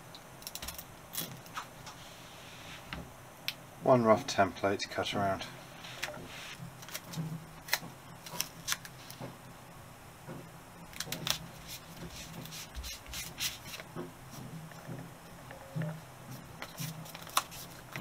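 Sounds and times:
paper and rubber sheet rustling: 11.1 - 14.6, 16.3 - 18.0.

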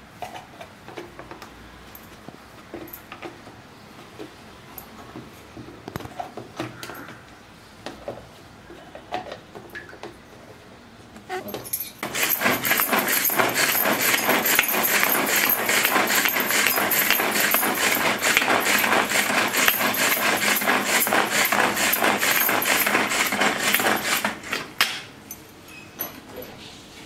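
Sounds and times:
pull cord whirring: 11.5 - 24.8
blades chopping rattling clatter: 12.0 - 24.7.

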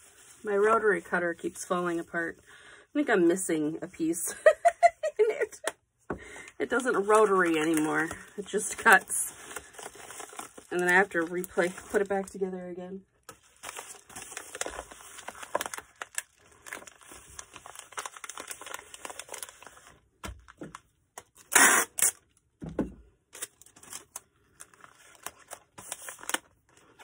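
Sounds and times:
packing materials rustling: 6.6 - 12.4, 13.2 - 21.5, 23.4 - 27.0
loud tearing: 21.4 - 22.2.

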